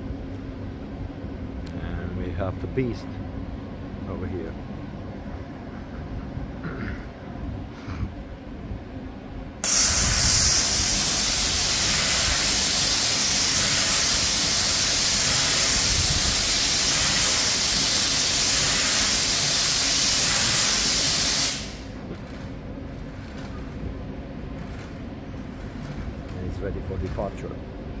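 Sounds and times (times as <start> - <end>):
compressed air hissing from train: 9.6 - 22.1.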